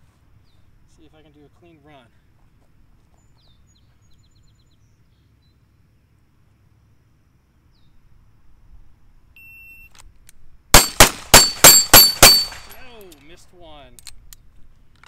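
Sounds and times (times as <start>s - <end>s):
faint bird chirps: 3.1s - 6.2s
pistol shot: 10.8s - 12.8s.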